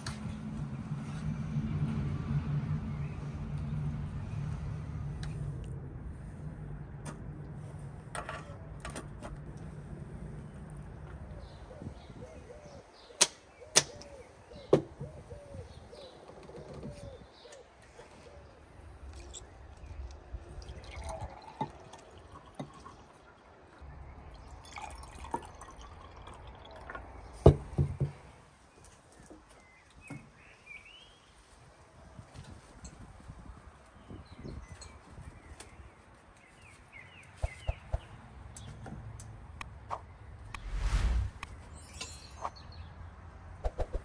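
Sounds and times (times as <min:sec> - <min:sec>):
bird chirps: 0:37.0 - 0:38.2
sharp clicks and clinks: 0:41.7 - 0:42.7.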